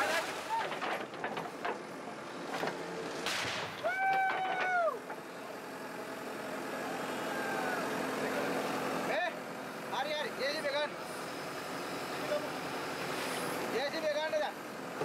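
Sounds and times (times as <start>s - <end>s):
bucket digging: 0.0s - 1.6s
diesel engine running: 4.0s - 15.0s.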